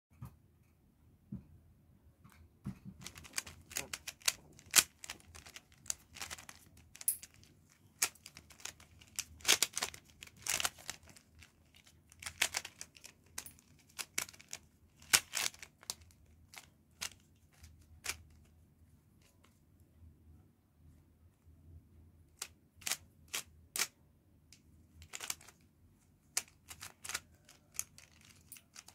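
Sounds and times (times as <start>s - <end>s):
puzzle cube clicking: 3.0s - 18.4s, 22.4s - 24.0s, 25.0s - 25.6s, 26.3s - 28.9s.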